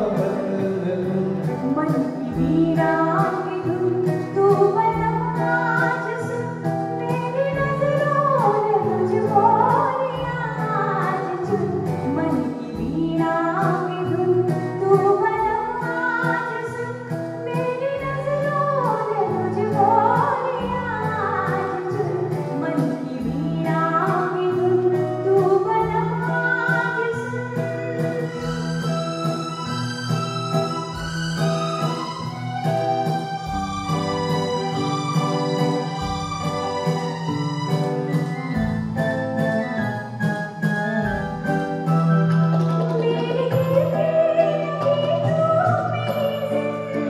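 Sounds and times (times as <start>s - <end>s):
woman singing into a microphone: 0.0s - 28.8s, 42.9s - 47.0s
band with keyboard and electric guitar: 0.0s - 47.0s.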